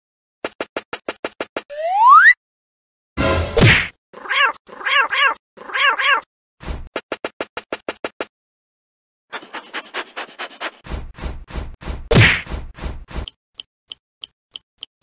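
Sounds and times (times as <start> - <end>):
cartoon cat meowing: 4.2 - 6.3.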